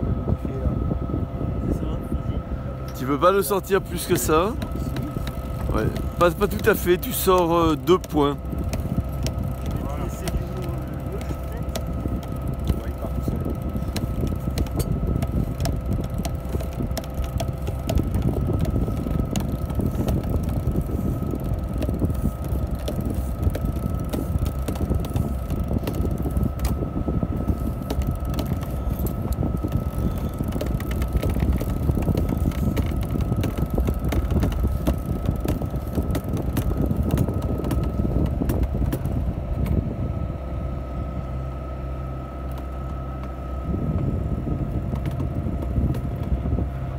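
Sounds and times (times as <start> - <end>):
wind buffeting microphone: 0.0 - 41.8, 42.4 - 46.9
constant high hum: 0.0 - 46.9.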